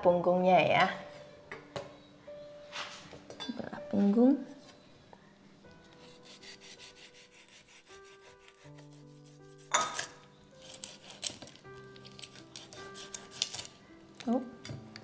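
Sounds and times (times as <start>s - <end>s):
blade scraping prawn shells: 6.0s - 13.8s.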